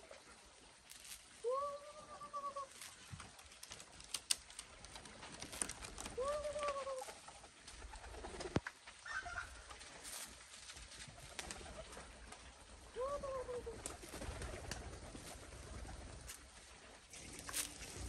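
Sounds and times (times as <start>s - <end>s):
pigeon cooing: 1.4s - 3.0s, 5.6s - 7.2s, 13.0s - 15.0s.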